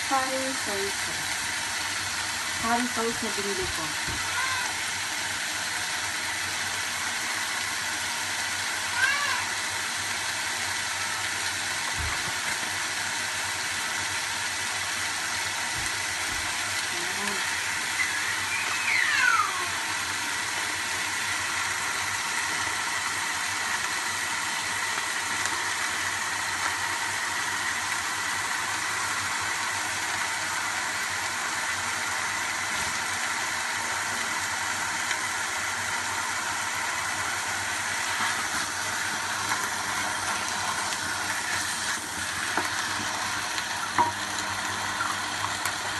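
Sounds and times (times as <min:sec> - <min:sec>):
food sizzling in a wok: 0:00.0 - 0:45.9
falling chirps: 0:17.9 - 0:19.4.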